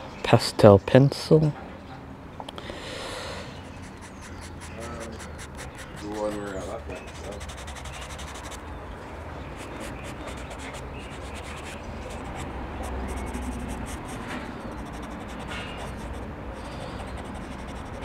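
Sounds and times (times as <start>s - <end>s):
pencil scratching on paper: 3.6s - 8.6s, 9.6s - 18.0s.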